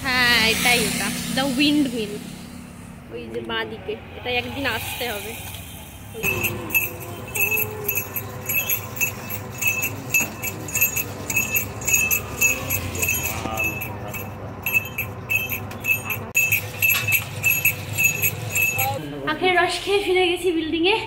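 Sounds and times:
machine hum: 0.0 - 19.3
small bells jingling: 6.2 - 19.1.

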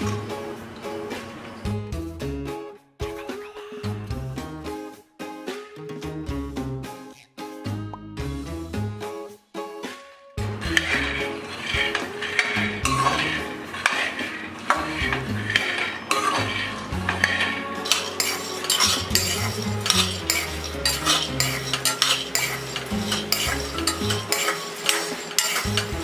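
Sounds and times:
background music: 0.0 - 26.0
spatula scraping peanuts in pan: 10.5 - 26.0.

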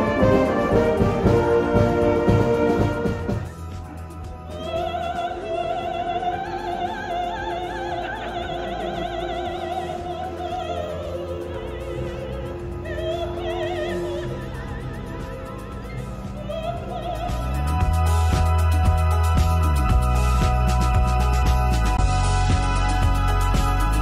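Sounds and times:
soprano singing opera: 4.5 - 15.3, 15.9 - 18.5.

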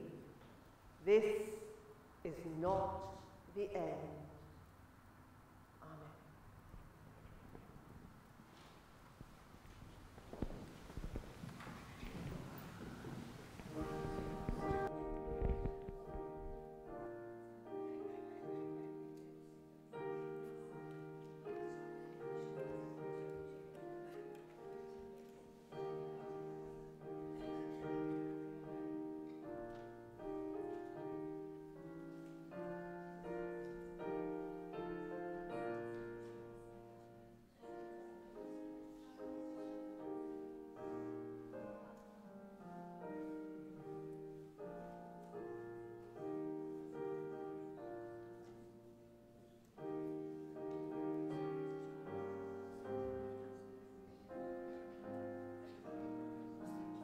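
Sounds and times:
slow solo piano: 6.4 - 57.0.

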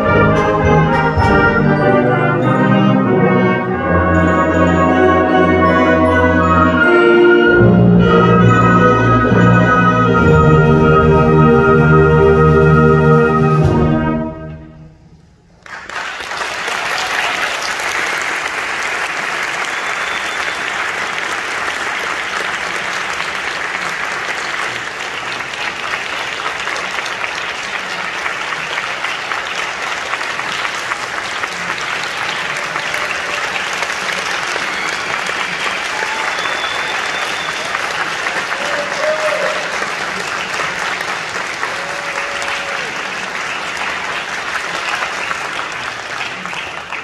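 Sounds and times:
audience applauding: 15.6 - 47.0.

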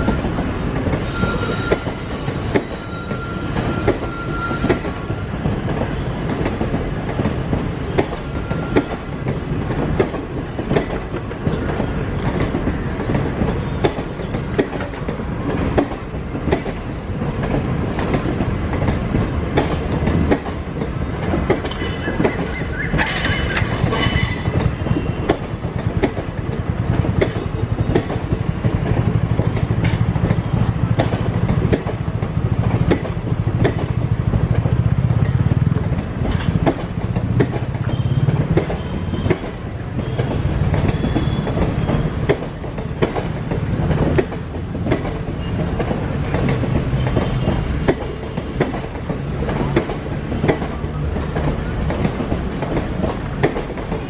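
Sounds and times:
train wheels clacking over rail joints: 0.0 - 54.0
high squeal: 1.0 - 5.0, 21.7 - 24.7.

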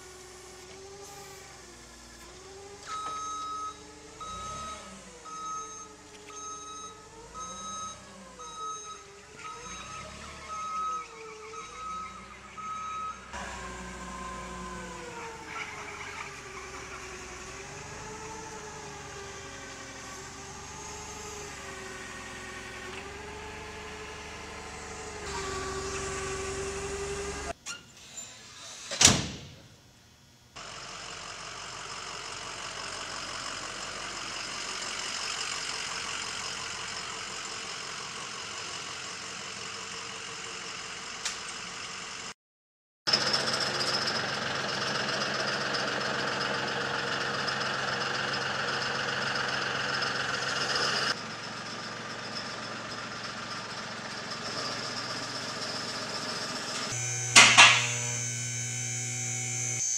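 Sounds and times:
forklift motor running: 0.0 - 27.6, 30.6 - 42.3, 43.1 - 59.9
sharp loud knock: 57.4 - 57.9.

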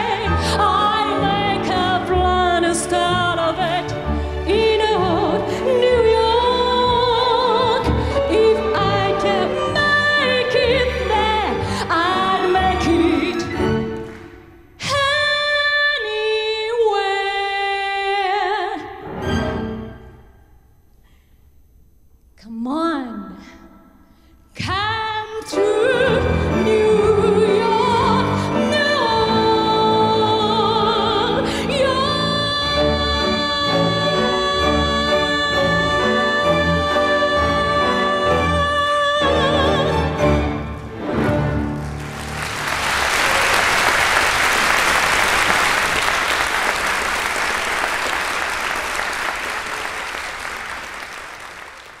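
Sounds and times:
woman singing with vibrato: 0.0 - 13.7, 14.8 - 19.0, 22.4 - 23.6, 24.6 - 40.2
strings and piano orchestra: 0.0 - 15.0, 25.4 - 49.7
audience applauding: 41.8 - 52.0.

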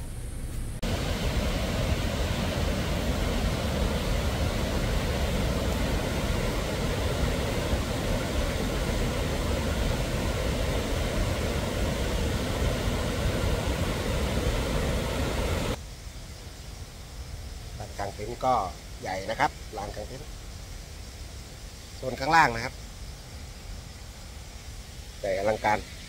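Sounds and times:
stream and waterfall rushing: 0.8 - 15.8, 21.3 - 26.0.

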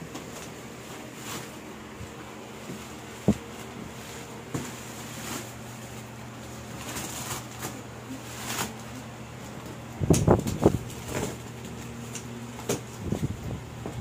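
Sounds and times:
plastic wrap rustling and crinkling: 0.0 - 9.6, 10.3 - 13.3
steady low hum: 0.0 - 14.0.

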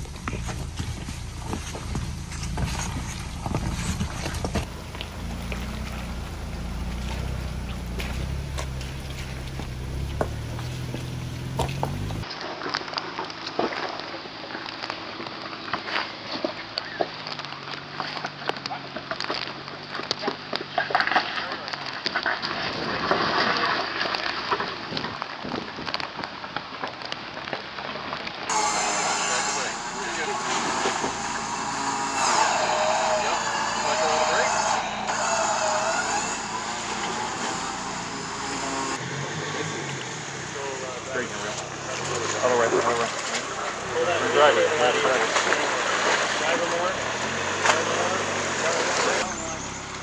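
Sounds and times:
engine running low and steady: 0.0 - 12.3, 28.5 - 50.0
tyres clicking over wet rocks: 0.0 - 28.5.

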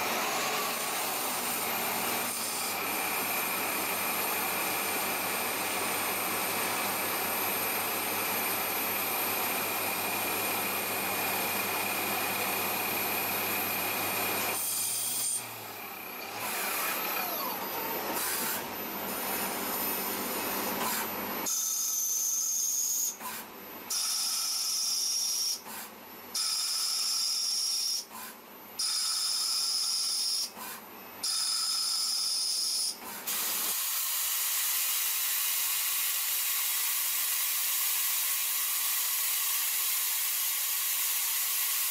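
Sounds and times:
lathe cutting noise: 0.0 - 23.0
high machine whine: 0.0 - 25.6.

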